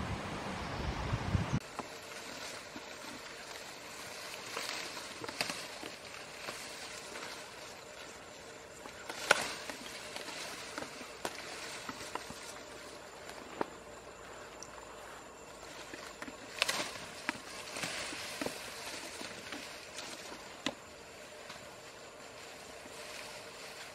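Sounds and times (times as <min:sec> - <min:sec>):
steady outdoor hiss: 0:00.0 - 0:23.9
grass and brush rustling: 0:01.6 - 0:23.9
stems snapping: 0:04.4 - 0:06.7, 0:08.8 - 0:12.5, 0:16.2 - 0:18.6.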